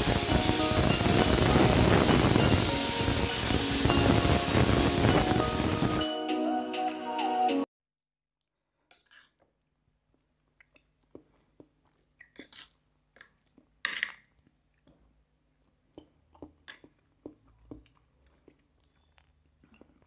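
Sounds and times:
soft chewing and mouth noises: 0:08.9 - 0:20.0.

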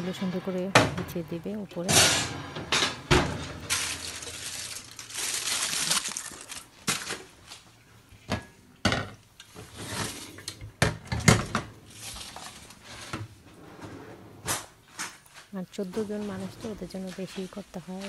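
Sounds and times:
metal trays knocking and clanking: 0:00.1 - 0:04.0
noisy rustling: 0:02.1 - 0:07.7.

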